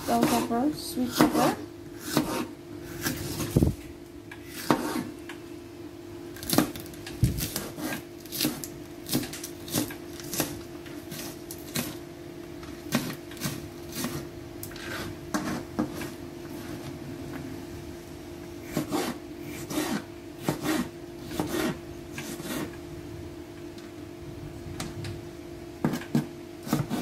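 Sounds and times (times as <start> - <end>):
knife chopping on plastic board: 0.1 - 0.5, 1.1 - 3.4, 4.5 - 5.1, 7.4 - 12.0, 18.7 - 22.7, 25.8 - 27.0.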